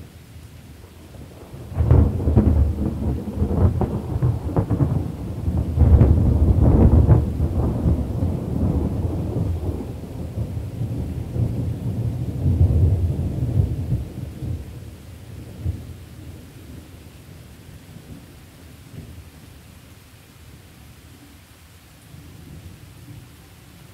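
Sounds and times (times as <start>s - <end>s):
falling rain: 0.0s - 23.9s
thunder rolling: 1.6s - 14.6s.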